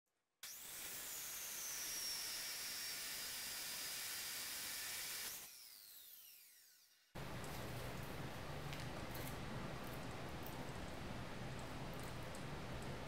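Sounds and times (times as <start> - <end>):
saw blade spinning down: 0.4 - 7.1
chop saw grinding through steel: 0.4 - 7.2.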